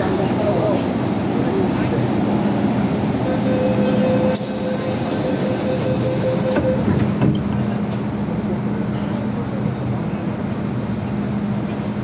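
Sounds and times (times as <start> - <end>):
train rumble: 0.0 - 12.0.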